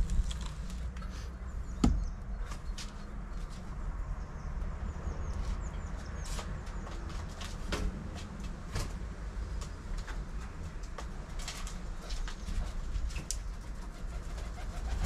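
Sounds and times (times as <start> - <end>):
wooden arm knocks and clicks: 1.8 - 2.1.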